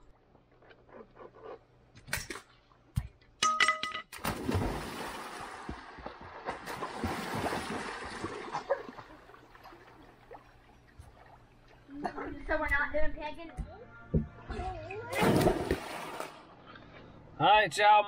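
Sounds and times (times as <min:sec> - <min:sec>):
big splash into pool: 0:04.2 - 0:09.0, 0:15.1 - 0:16.4
water sloshing: 0:04.2 - 0:12.0, 0:15.1 - 0:16.6.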